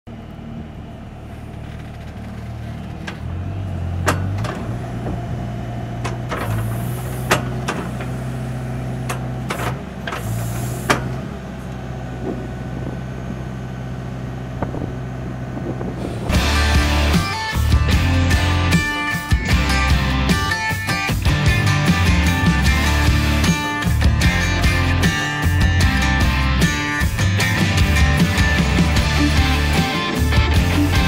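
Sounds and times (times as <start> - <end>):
skid steer engine running: 0.1 - 31.0
sharp metallic clunks: 4.0 - 5.2, 6.0 - 8.2, 9.0 - 11.3.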